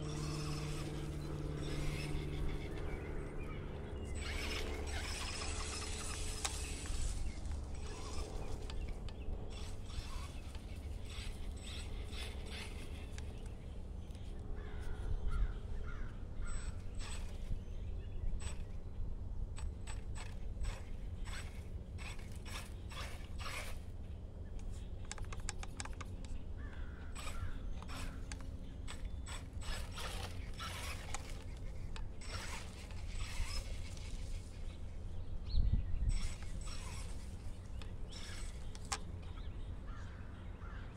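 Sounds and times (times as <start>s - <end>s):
mechanical clicking and rattling: 3.8s - 14.3s, 19.6s - 34.9s, 36.1s - 39.5s.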